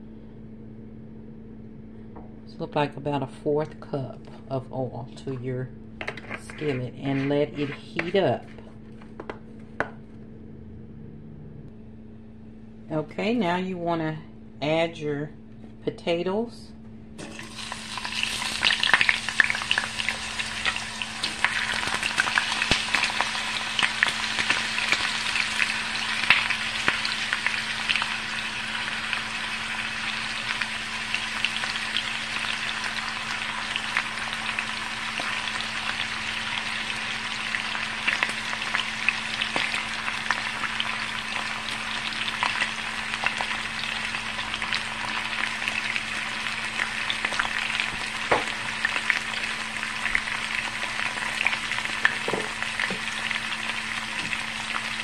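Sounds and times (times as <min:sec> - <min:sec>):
potatoes sizzling in hot oil: 0:06.0 - 0:08.6, 0:17.2 - 0:55.0.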